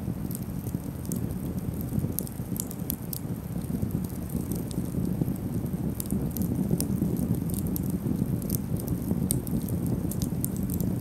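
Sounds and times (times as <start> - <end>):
campfire crackling and popping: 0.0 - 11.0.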